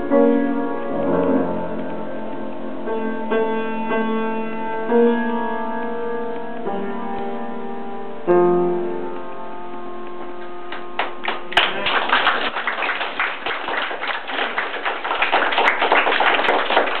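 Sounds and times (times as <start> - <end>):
piano chord ringing: 0.0 - 11.6
audience applause: 10.7 - 17.0.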